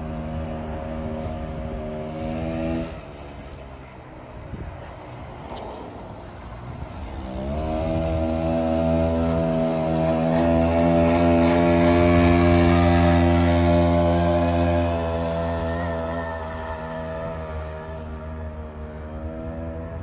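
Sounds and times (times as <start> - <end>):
mini bike engine running: 0.0 - 20.0.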